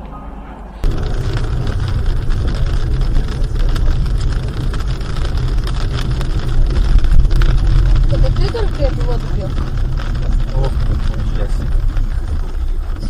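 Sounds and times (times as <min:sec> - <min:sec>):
engine and tyre rumble: 0:00.8 - 0:13.0
rain ticking on windscreen: 0:00.8 - 0:13.0.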